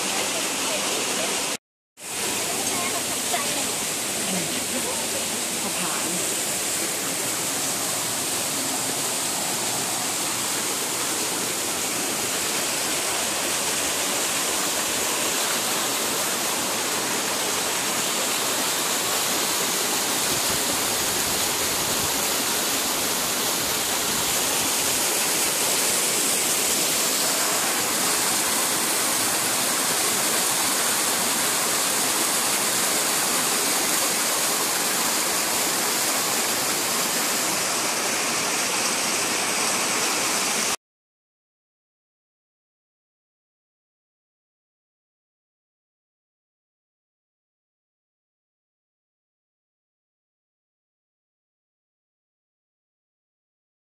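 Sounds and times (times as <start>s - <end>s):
small waterfall rushing: 0.0s - 40.8s.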